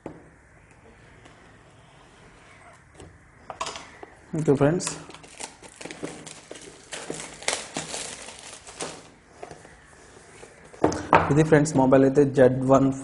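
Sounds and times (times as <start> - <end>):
plastic wrap crinkling: 4.4 - 9.2.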